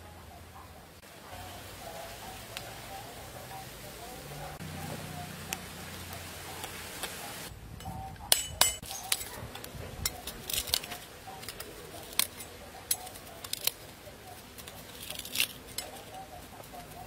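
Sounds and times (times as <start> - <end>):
cleaver cutting fruit rind: 8.6 - 16.2.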